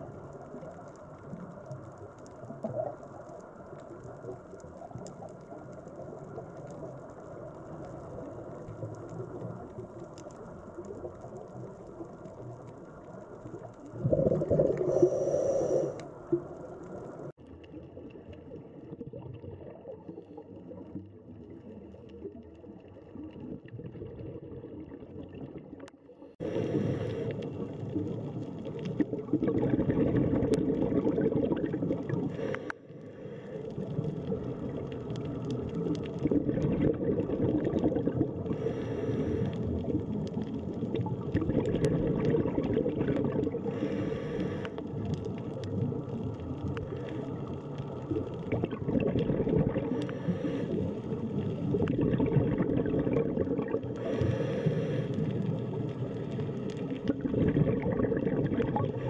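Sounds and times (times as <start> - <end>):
faint clicks: 0.0 - 15.0, 15.8 - 18.6, 32.0 - 36.7, 43.1 - 49.2, 49.8 - 51.7
underwater rush and bubbling: 0.0 - 59.0.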